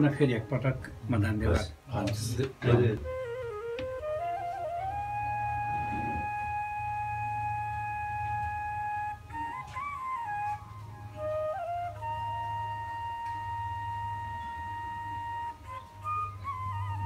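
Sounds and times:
wind instrument playing slowly: 2.7s - 17.0s.

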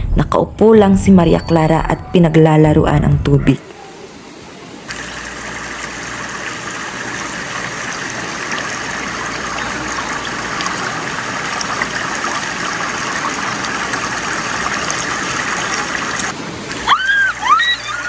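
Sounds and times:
stream and waterfall rushing: 12.2s - 18.0s.

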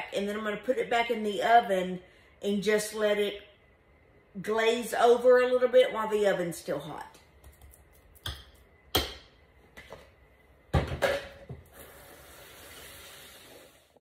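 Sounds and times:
faint hiss: 11.7s - 14.0s.

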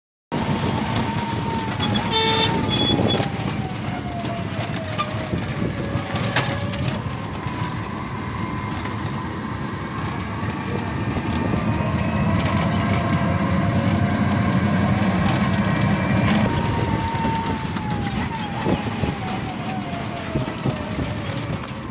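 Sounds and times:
vehicle rattle and road noise: 0.3s - 21.9s
short horn beeps: 2.0s - 3.0s.

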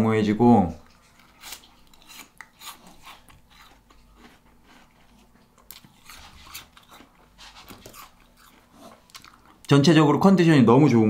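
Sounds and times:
dog chewing: 0.8s - 9.7s.

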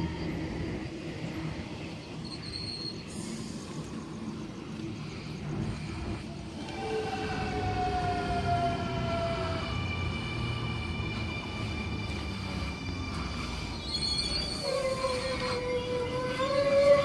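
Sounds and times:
train wheels rumbling on rails: 0.0s - 17.0s
traction motor whine: 4.7s - 17.0s.

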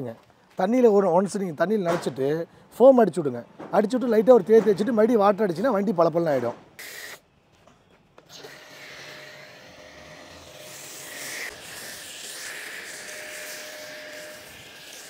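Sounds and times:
pressure washer spraying: 6.8s - 7.2s, 11.0s - 15.0s.

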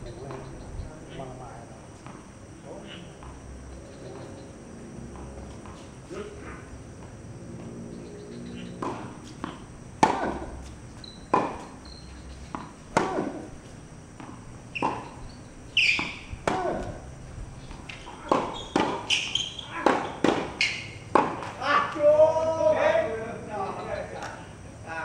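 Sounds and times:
rackets hitting tennis ball: 5.1s - 22.1s
ball bouncing on hard court: 8.8s - 10.5s, 11.2s - 11.7s, 14.2s - 15.1s, 15.8s - 17.0s, 17.7s - 21.6s.

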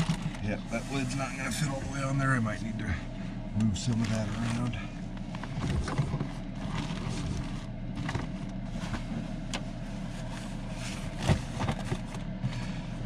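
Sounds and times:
items shifting in a container: 0.0s - 0.4s
steady low hum: 0.0s - 13.0s.

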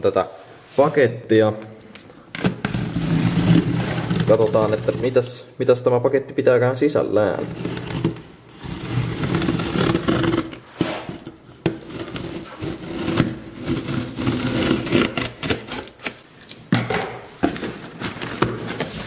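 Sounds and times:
cardboard rustling and scraping: 2.5s - 5.3s, 7.1s - 16.6s, 17.3s - 19.0s.

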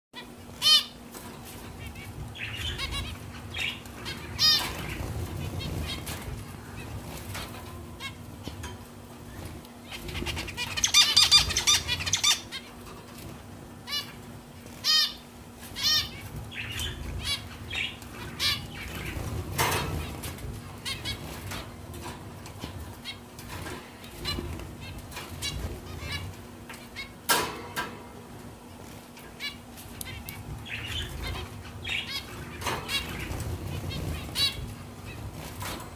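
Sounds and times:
zebra finches calling: 0.2s - 27.9s, 29.0s - 35.9s
wings flapping: 28.6s - 35.9s.

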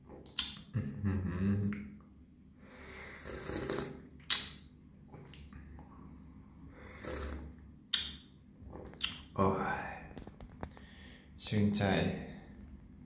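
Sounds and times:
noisy breaths: 2.6s - 3.8s, 10.6s - 11.4s
person slurping hot tea: 3.0s - 4.1s, 6.8s - 7.6s.

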